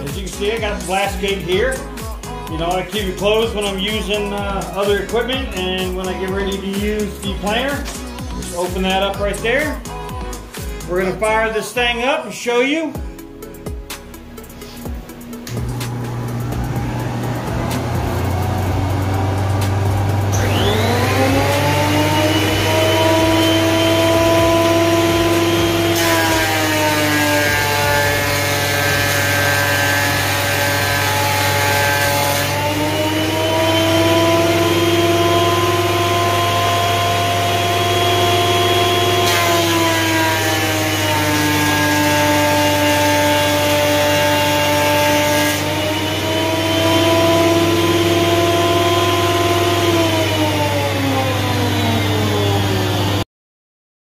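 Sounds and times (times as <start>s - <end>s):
dust collector hum: 0.0s - 12.2s, 14.0s - 53.2s
thickness planer motor whine: 14.3s - 53.2s
planer cutting hiss: 14.5s - 53.2s.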